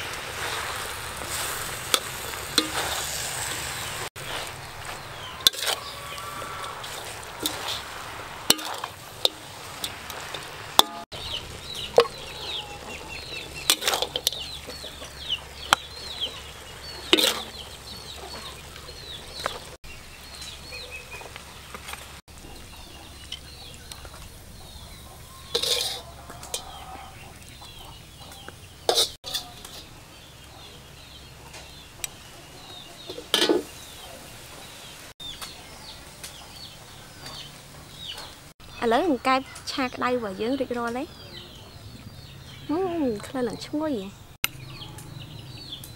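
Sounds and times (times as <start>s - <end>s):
metal spatula scraping in a wok: 0.2s - 11.1s, 13.6s - 14.8s, 16.7s - 18.6s, 25.4s - 26.8s, 28.8s - 29.9s
chickens clucking: 3.6s - 19.8s, 22.3s - 38.4s
utensils clinking on a plate: 25.5s - 26.8s, 28.9s - 29.9s, 33.1s - 33.7s.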